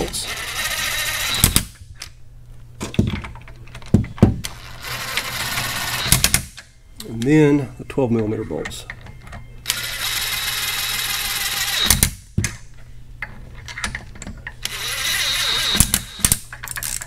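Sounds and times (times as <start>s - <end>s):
cordless ratchet whirring: 0.0s - 1.7s, 4.4s - 6.4s, 9.7s - 12.1s, 14.6s - 17.0s.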